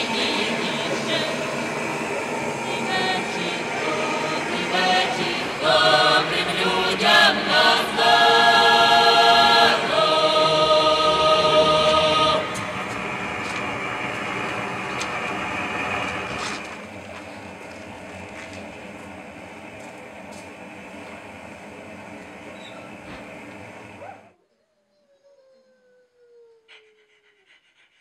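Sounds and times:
voices singing in harmony: 0.0 - 14.8.

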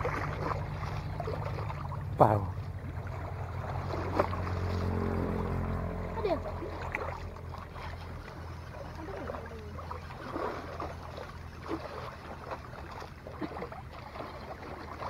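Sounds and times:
small waves lapping against rocks: 0.0 - 5.0, 6.6 - 15.0
low hum: 0.0 - 15.0.

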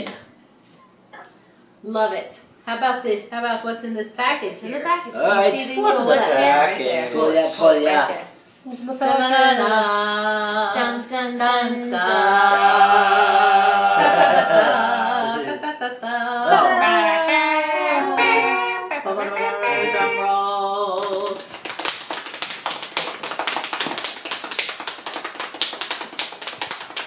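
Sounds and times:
voices singing wordless tune: 5.2 - 21.4.

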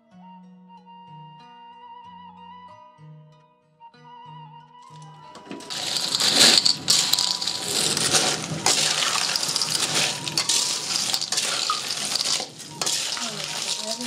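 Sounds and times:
shells scraping against pan: 4.9 - 14.0
snails sizzling in a wok: 4.9 - 14.0.

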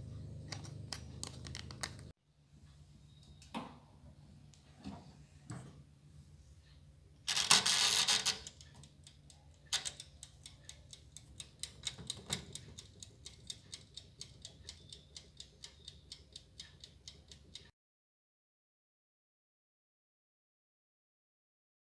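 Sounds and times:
oven timer ticking: 8.4 - 17.7.

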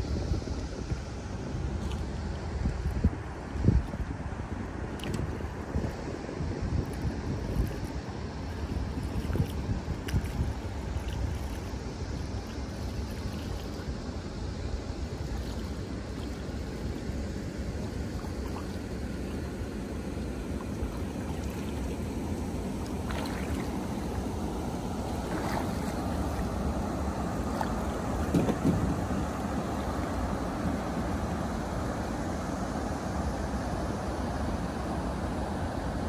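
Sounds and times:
wind rumbling on microphone: 0.0 - 32.5
light water splashes: 4.8 - 31.4
water lapping against boat: 4.8 - 32.2.

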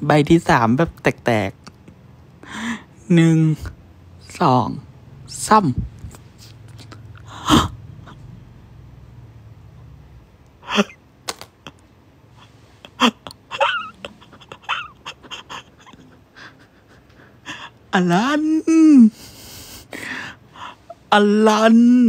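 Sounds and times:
breathy gasps and squeaks: 6.3 - 8.3.

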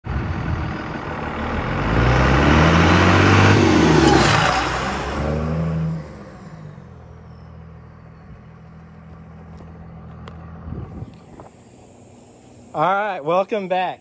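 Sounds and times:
vehicle engine running: 0.0 - 14.0.

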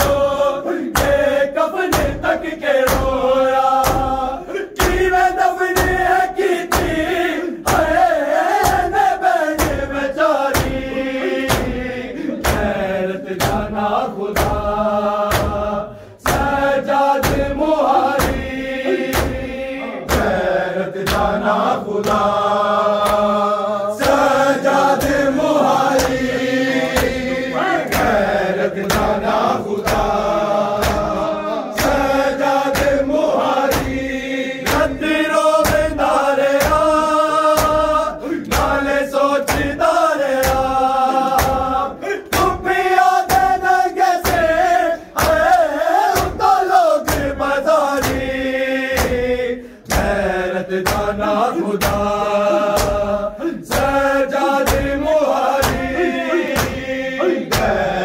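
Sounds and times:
hands slapping bare chests: 0.0 - 20.4, 21.0 - 23.4, 24.0 - 27.3, 27.9 - 53.1, 53.7 - 57.8
crowd of men chanting: 0.0 - 58.0.

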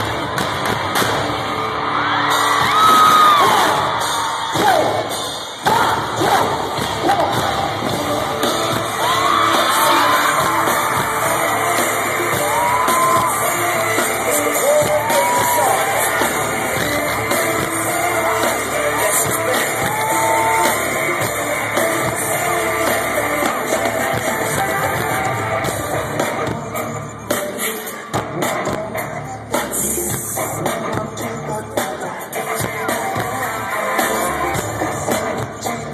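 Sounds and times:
fans screaming: 0.0 - 26.2
loud live pop music: 0.0 - 35.9.

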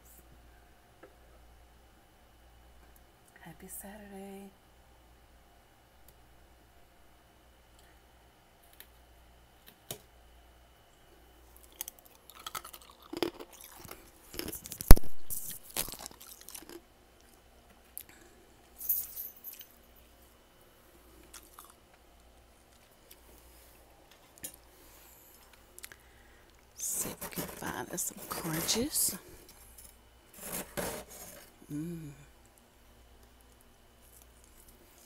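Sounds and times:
freezer frost crunching: 11.5 - 17.4, 26.8 - 31.6.

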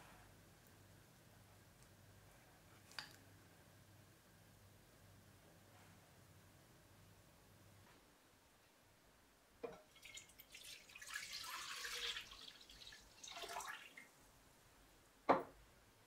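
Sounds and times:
milk pouring into pot: 9.8 - 14.1.

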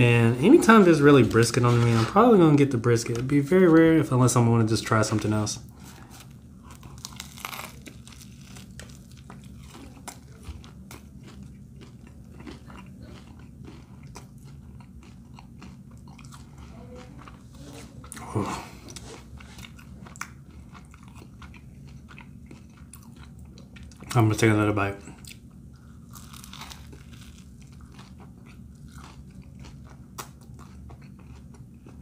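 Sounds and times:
person chewing crunchy sandwich: 5.7 - 24.2, 25.0 - 32.0
crisp bite crunch: 6.1 - 16.6, 25.0 - 32.0.

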